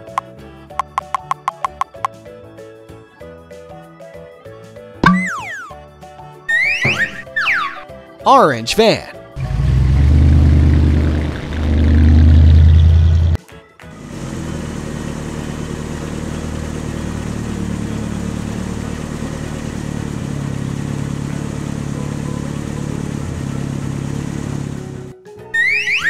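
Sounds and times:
van engine running: 9.4s - 25.2s.

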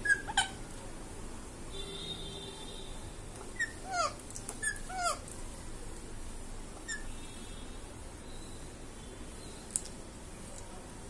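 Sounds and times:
parakeet squeaking: 0.0s - 0.6s, 3.5s - 5.2s, 6.8s - 7.1s.

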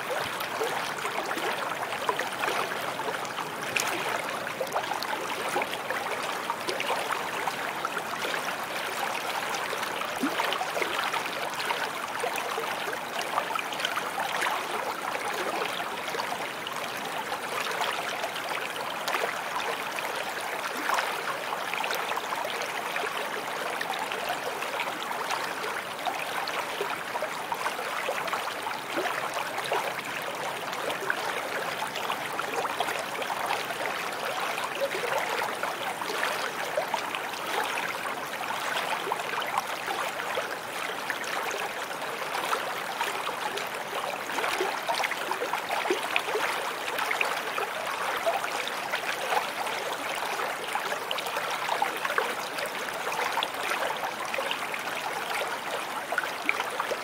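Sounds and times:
stream running over rocks: 0.0s - 57.0s.

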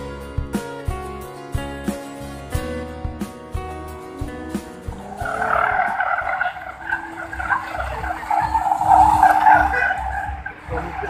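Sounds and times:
car engine running: 4.5s - 11.0s
car tyres squealing: 4.9s - 11.0s.

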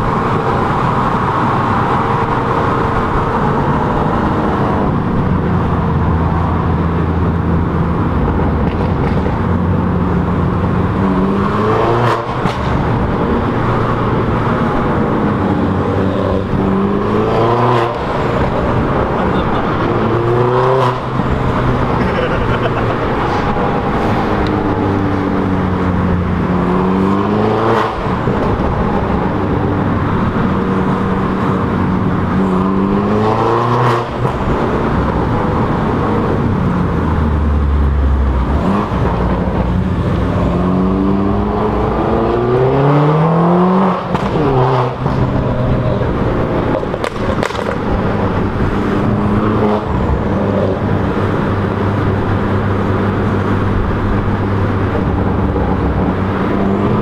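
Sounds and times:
car engine revving through gears: 8.7s - 57.0s
exhaust cracks: 44.0s - 49.2s.

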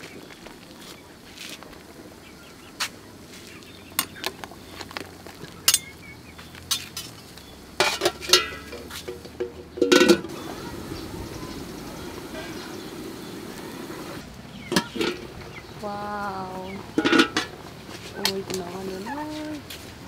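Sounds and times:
utensils clinking on metal pot: 5.6s - 6.0s, 7.8s - 10.3s, 14.7s - 15.3s, 17.0s - 17.6s.

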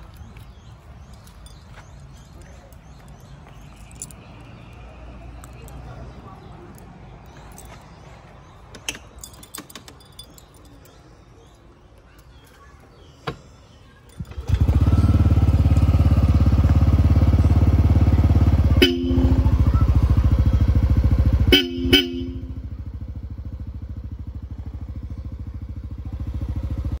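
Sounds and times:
scooter engine starting and idling: 12.3s - 27.0s
two-note horn beeps: 18.8s - 19.6s, 21.4s - 22.7s.

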